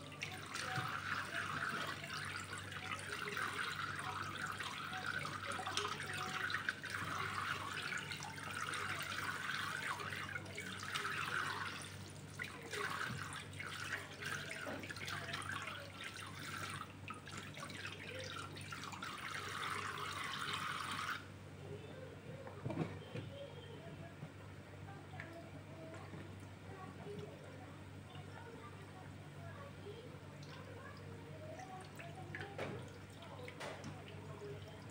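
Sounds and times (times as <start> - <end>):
tap water running into bowl: 0.0 - 21.3, 30.4 - 34.9.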